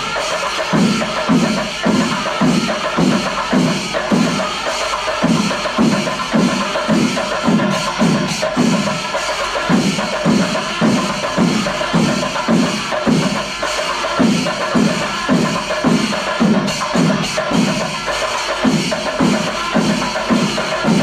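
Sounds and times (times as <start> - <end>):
drums and cymbals ensemble: 0.0 - 21.0
deep drum beat: 18.6 - 21.0.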